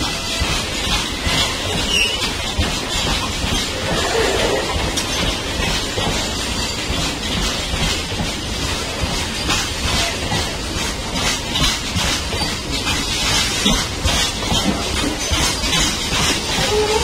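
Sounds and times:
clickety-clack over rail joints: 0.0 - 17.0
train wheels clattering on rails: 0.0 - 17.0
wheel squeal: 1.3 - 2.4, 16.4 - 17.0.

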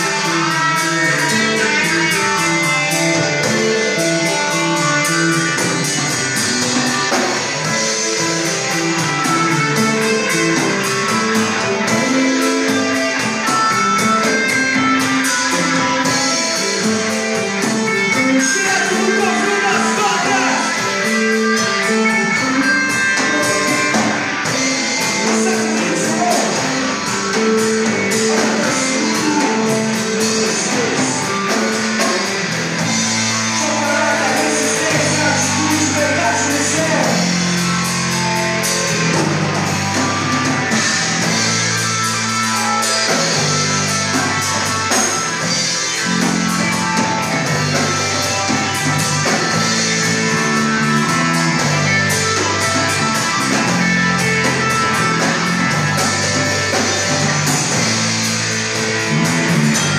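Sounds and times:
rock band playing live: 0.0 - 59.9
lead singer singing: 17.4 - 32.5, 33.3 - 37.8.

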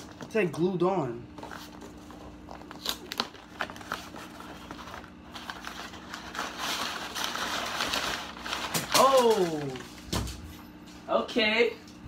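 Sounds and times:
cardboard and paper tearing: 1.4 - 10.1.

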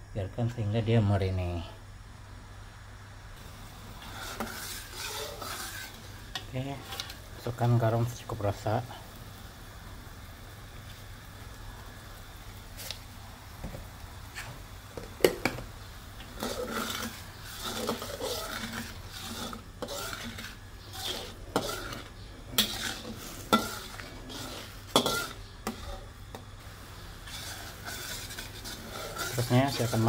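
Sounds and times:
spatula scraping wok: 3.4 - 9.4, 14.2 - 30.0.

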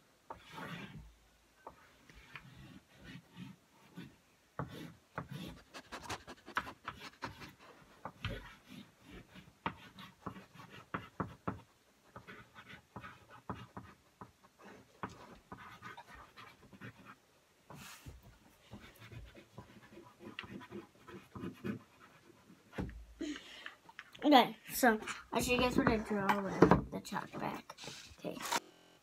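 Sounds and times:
chalk scratching on chalkboard: 0.3 - 1.0, 1.7 - 22.8
dog panting: 5.6 - 7.7.

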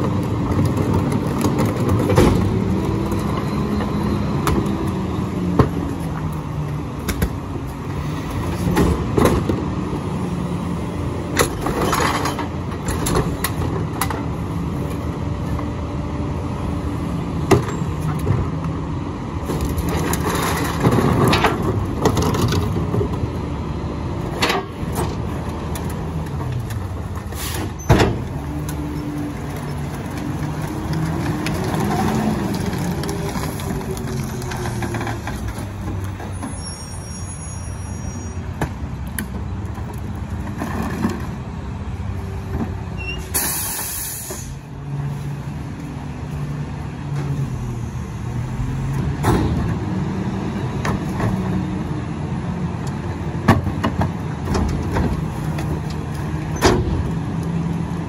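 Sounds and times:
carts banging against hopper: 0.0 - 3.3
garbage truck diesel engine: 0.0 - 58.0
trash dropping: 0.1 - 2.7, 26.3 - 28.6.

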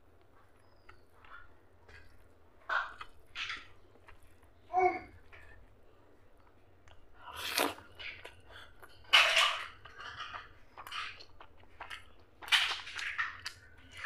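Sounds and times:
smacking chewing: 5.3 - 14.0.

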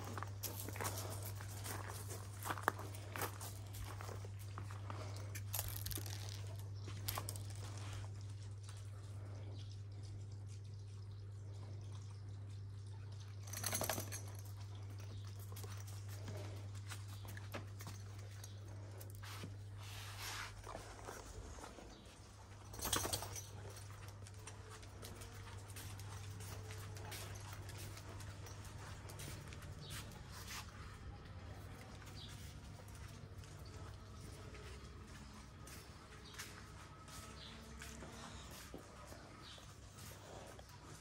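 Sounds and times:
dog footfalls on gravel: 0.0 - 7.7
steady low hum: 0.0 - 41.0.

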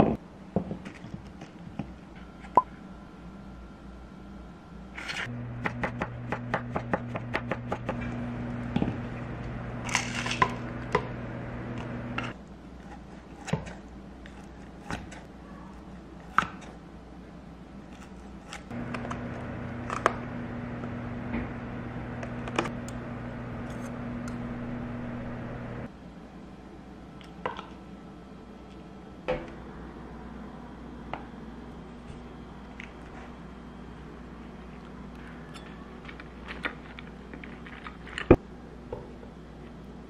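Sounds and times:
microwave oven humming: 2.7 - 12.4, 18.7 - 25.9.

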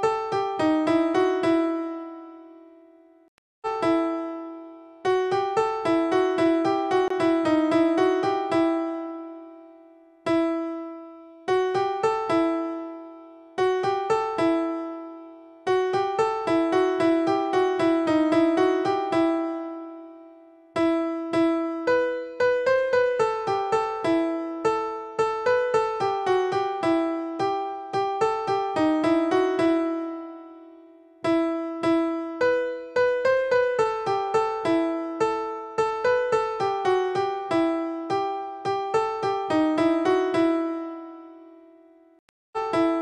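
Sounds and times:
keyboard melody: 0.0 - 43.0.

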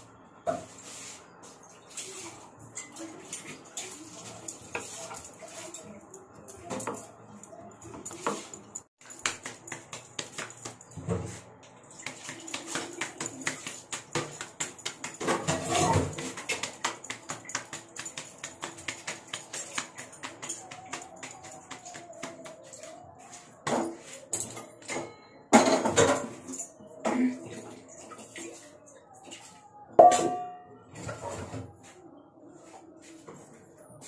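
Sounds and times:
dishes and utensils clinking: 0.4 - 31.8
dough slapped between palms: 9.1 - 10.9.

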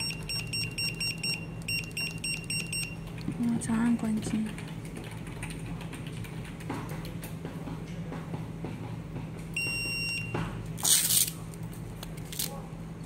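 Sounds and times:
short electronic scanner beep: 0.0 - 3.0, 9.6 - 10.4.

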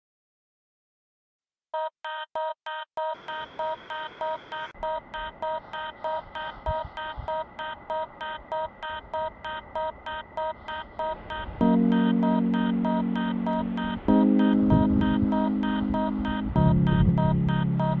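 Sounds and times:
soft steady synth bed: 3.1 - 18.0
pulsing synthesizer note: 4.6 - 18.0.

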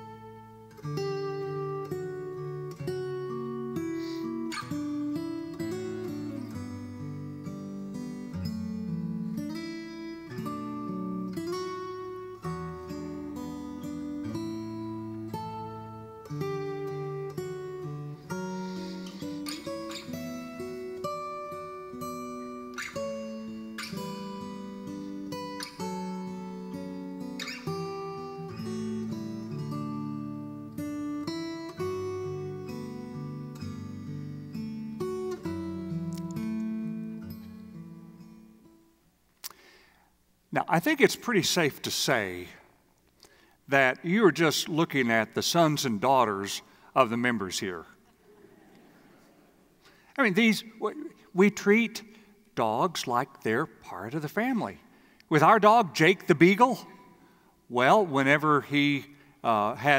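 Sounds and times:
strummed acoustic guitar: 0.0 - 38.9.

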